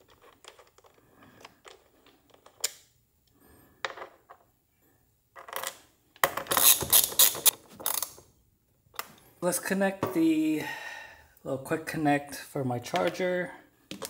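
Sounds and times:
small metal parts clinking: 0.0 - 1.0.

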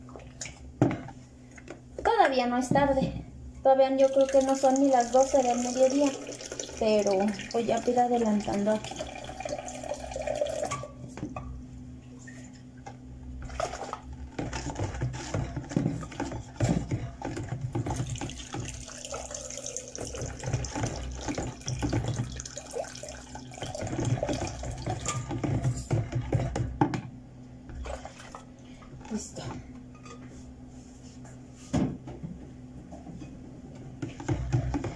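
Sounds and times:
steady low hum: 0.0 - 34.9
tap water running: 4.0 - 10.9, 13.4 - 26.4.

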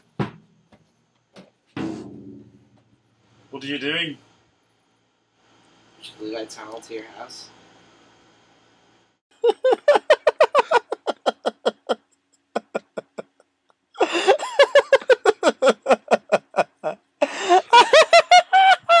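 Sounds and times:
people laughing hard: 9.4 - 12.0, 12.6 - 13.4, 14.0 - 19.0.

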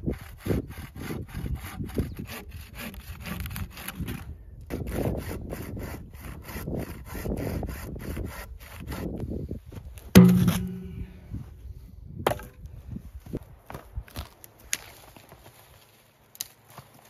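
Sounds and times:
hand saw cutting log: 0.0 - 9.2.

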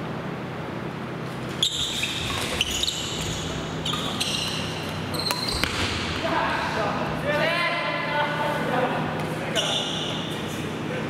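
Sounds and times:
steady low hum: 0.0 - 11.0
shoes squeaking on gym floor: 1.3 - 6.0, 9.5 - 10.7
rackets hitting shuttlecock: 4.0 - 6.3.

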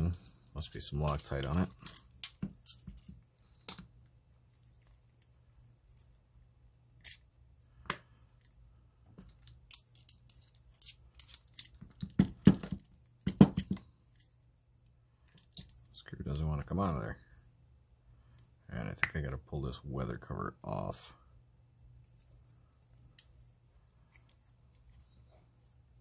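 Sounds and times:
metallic clicks and scrapes: 9.4 - 11.8.

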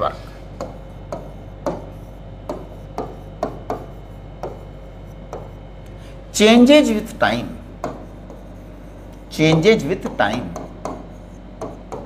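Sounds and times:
pen tapping on glass board: 0.6 - 5.6, 7.8 - 8.6, 9.4 - 12.0.

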